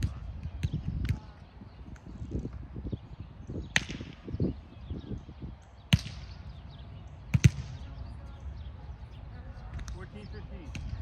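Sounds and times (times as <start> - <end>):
volleyball hit by hands: 3.6 - 4.2, 7.3 - 7.8.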